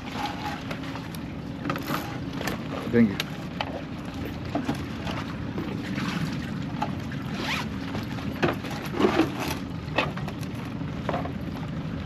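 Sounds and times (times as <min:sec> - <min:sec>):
bag zipper zipping: 0:07.4 - 0:07.7.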